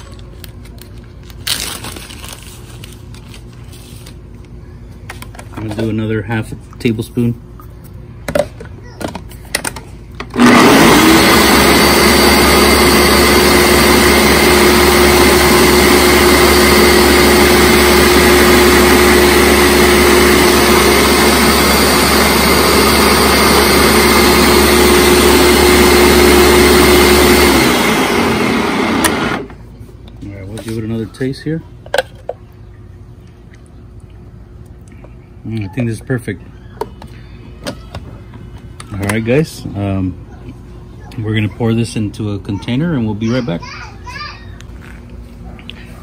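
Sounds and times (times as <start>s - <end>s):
blender motor running: 10.3s - 29.6s.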